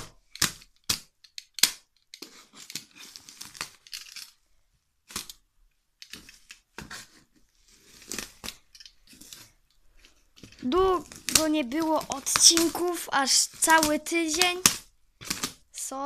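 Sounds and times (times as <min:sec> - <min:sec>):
knife tearing plastic and cardboard: 0:00.0 - 0:04.4, 0:06.1 - 0:09.6, 0:10.4 - 0:15.8
plastic crinkling: 0:07.8 - 0:15.9.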